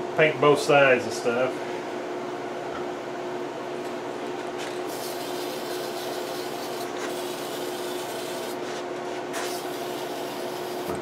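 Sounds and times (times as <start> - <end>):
fan humming: 0.0 - 11.0.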